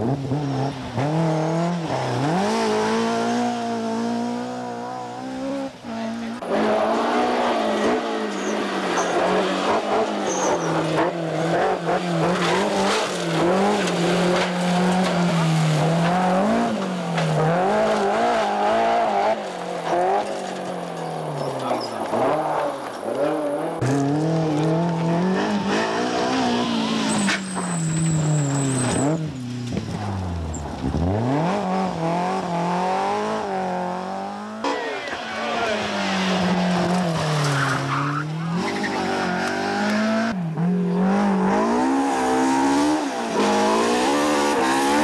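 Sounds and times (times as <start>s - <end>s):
rally car engine revving: 0.0s - 45.0s.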